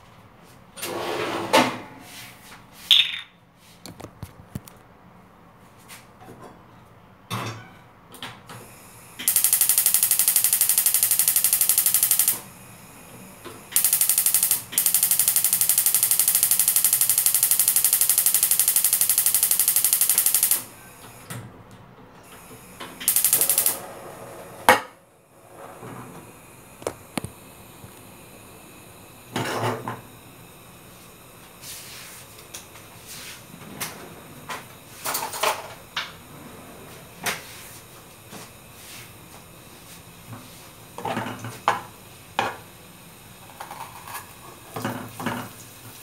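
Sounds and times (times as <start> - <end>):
spark igniter clicking rapidly: 9.2 - 12.5, 13.7 - 20.7, 23.0 - 23.8.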